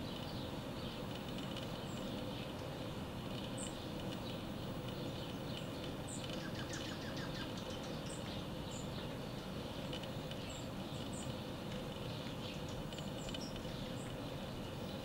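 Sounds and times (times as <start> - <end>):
steady background hiss: 0.0 - 15.0
bird chip calls: 3.5 - 9.8.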